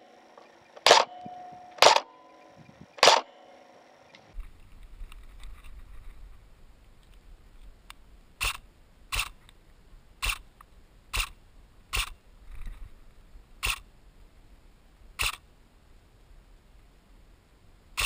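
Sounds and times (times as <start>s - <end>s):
airsoft gun firing clicks: 0.8s - 1.2s, 1.8s - 2.1s, 3.0s - 3.3s.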